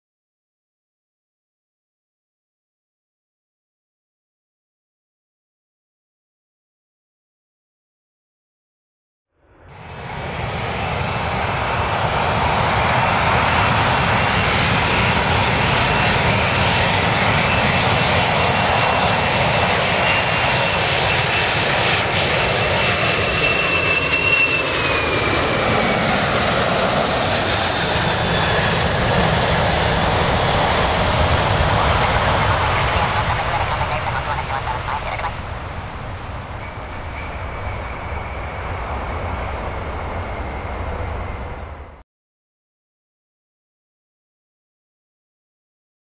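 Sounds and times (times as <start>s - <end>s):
high engine whine: 9.4s - 42.0s
jet engines roaring: 9.6s - 42.0s.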